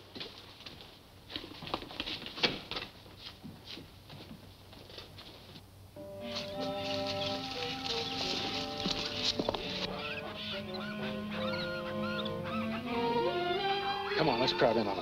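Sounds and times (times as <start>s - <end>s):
footsteps and shuffling: 0.0s - 13.4s
background music with held notes: 6.0s - 15.0s.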